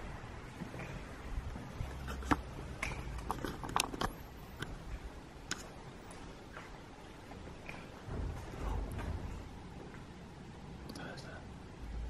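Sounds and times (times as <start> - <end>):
low steady hum: 0.0 - 12.0
sharp irregular clicks and knocks: 2.0 - 4.7.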